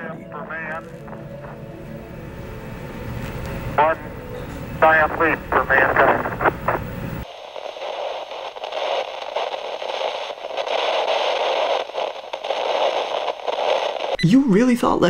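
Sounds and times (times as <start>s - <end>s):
radio static hiss: 0.0s - 14.2s
faint crackle: 4.8s - 14.2s.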